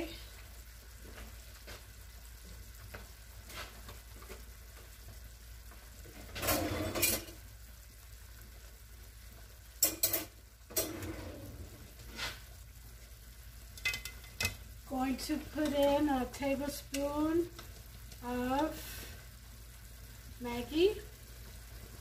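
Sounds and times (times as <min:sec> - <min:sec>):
pot scraping: 0:06.3 - 0:07.4, 0:10.0 - 0:12.4.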